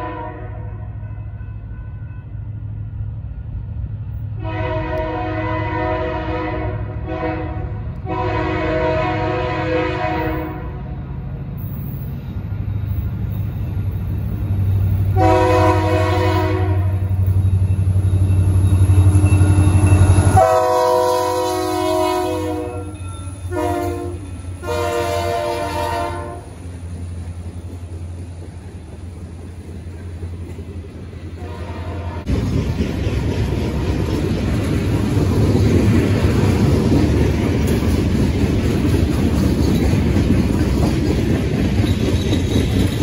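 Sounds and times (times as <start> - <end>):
train horn blasts: 0.0 - 2.4, 4.4 - 11.0, 15.1 - 17.3, 19.2 - 26.6, 31.4 - 32.3
diesel locomotive engine rumble: 0.0 - 43.0.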